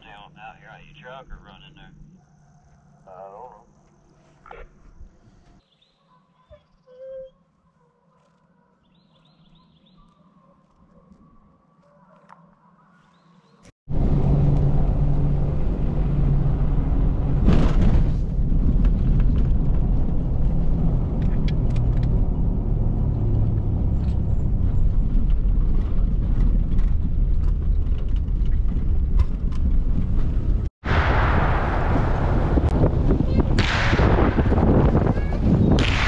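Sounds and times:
truck engine and tyre rumble: 13.9s - 36.0s.

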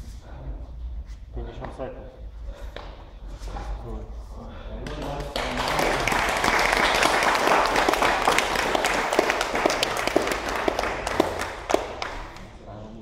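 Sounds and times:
single hand claps: 4.8s - 12.6s
audience applauding: 4.9s - 12.6s.

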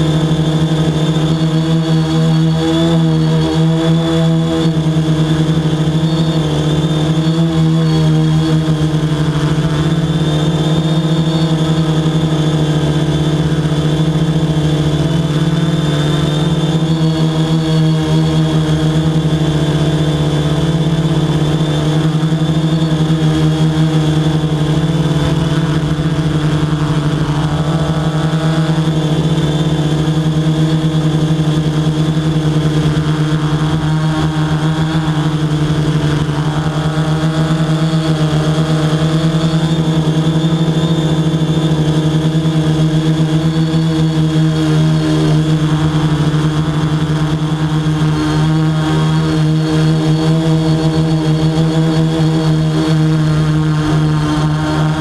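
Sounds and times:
drone propellers humming: 0.0s - 55.0s.

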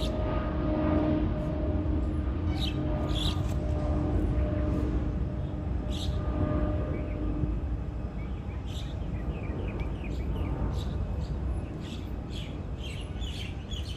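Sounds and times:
low outdoor rumble: 0.0s - 13.9s
birds chirping: 2.5s - 3.6s, 5.4s - 13.9s.

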